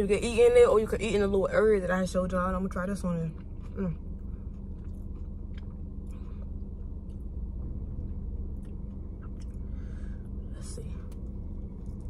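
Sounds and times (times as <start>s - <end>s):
low hum inside car: 0.0s - 12.0s.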